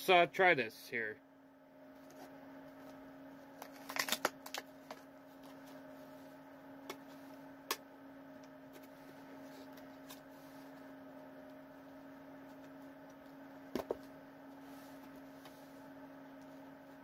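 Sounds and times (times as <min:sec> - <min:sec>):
steady low hum: 0:00.0 - 0:17.0
plastic packaging crackling: 0:03.6 - 0:05.0.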